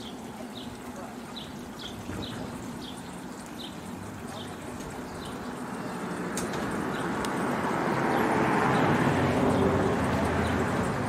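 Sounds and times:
road vehicle passing: 0:03.8 - 0:11.0.

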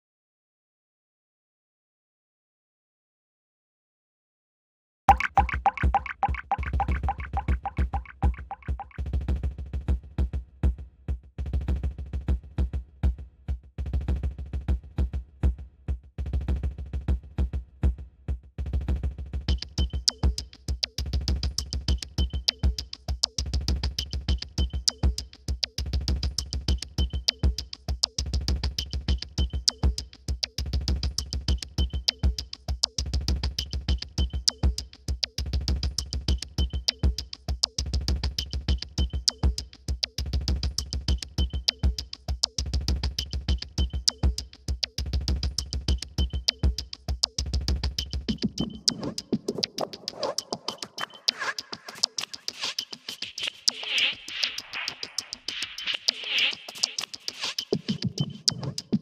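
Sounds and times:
electronic music: 0:05.1 - 0:09.0, 0:48.0 - 0:59.0.

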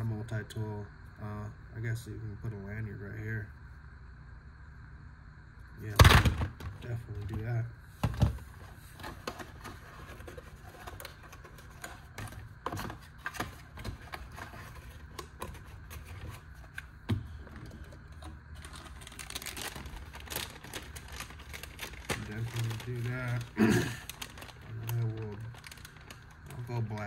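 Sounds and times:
low steady hum: 0:00.0 - 0:27.0
packaging clicks and scrapes: 0:08.6 - 0:27.0.

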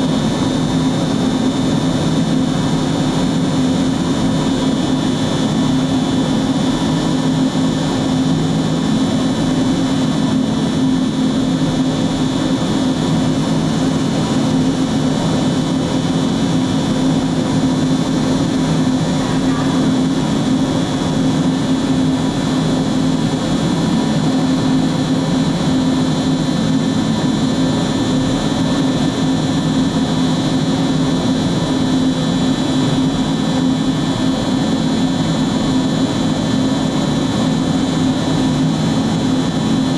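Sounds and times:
cnc router whining: 0:18.7 - 0:21.3.

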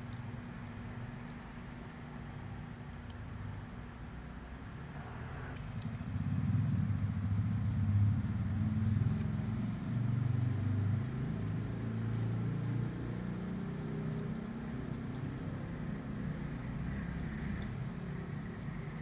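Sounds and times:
vehicle engine rumbling: 0:04.8 - 0:19.0.

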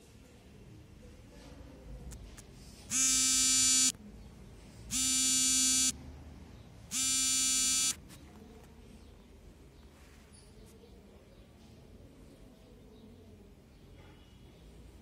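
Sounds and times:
buzzer sounding: 0:02.9 - 0:04.0, 0:04.9 - 0:06.0, 0:06.9 - 0:08.0.

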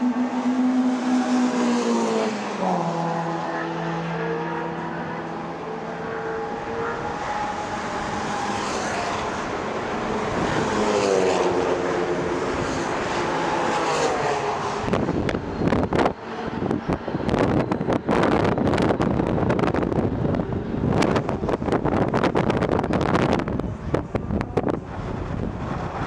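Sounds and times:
sports car engines passing: 0:00.0 - 0:26.0
wind buffeting microphone: 0:05.4 - 0:26.0.

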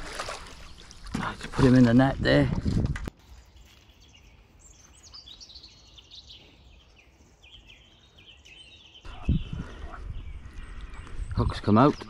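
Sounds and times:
rustle: 0:03.2 - 0:09.0
birds chirping and singing: 0:03.2 - 0:12.0.

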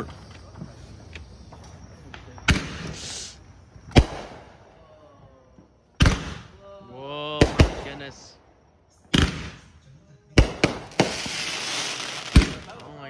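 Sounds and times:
fireworks bangs: 0:00.0 - 0:04.6, 0:05.5 - 0:06.6, 0:07.4 - 0:08.4, 0:09.1 - 0:09.8, 0:10.4 - 0:13.0
firework hiss: 0:02.4 - 0:04.3, 0:10.4 - 0:13.0.

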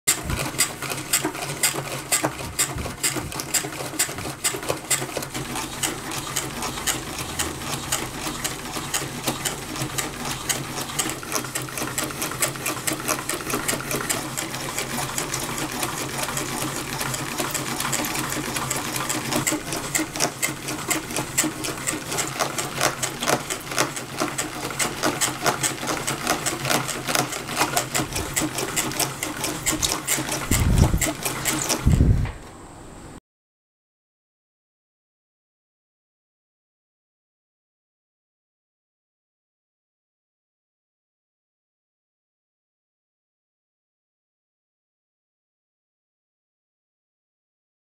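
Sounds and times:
crankshaft mechanical clatter: 0:00.1 - 0:32.1.

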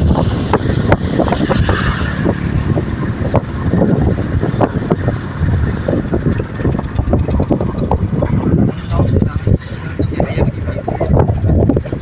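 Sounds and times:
motorbike running: 0:00.0 - 0:12.0
wind buffeting microphone: 0:00.0 - 0:12.0.

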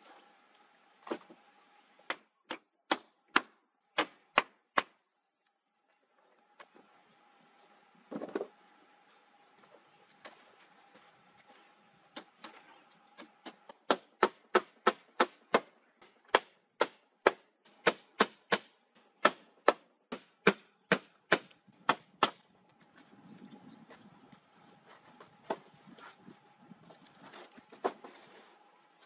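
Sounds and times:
hammer striking wooden planks: 0:02.1 - 0:05.0, 0:13.4 - 0:22.4.

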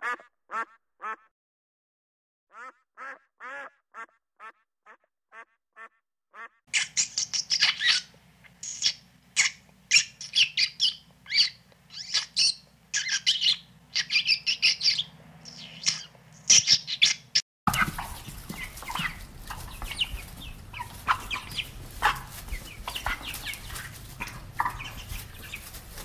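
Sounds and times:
harsh bird squawks: 0:00.0 - 0:01.3, 0:02.6 - 0:26.0
quacking bird calls: 0:00.0 - 0:01.3, 0:02.5 - 0:26.0
low hum: 0:17.7 - 0:26.0.

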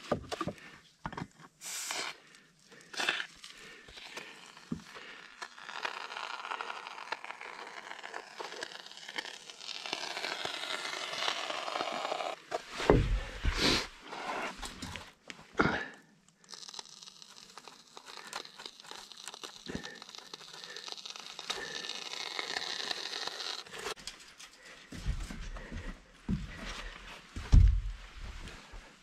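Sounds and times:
spray foam hissing and crackling: 0:01.6 - 0:02.2, 0:17.3 - 0:23.9.

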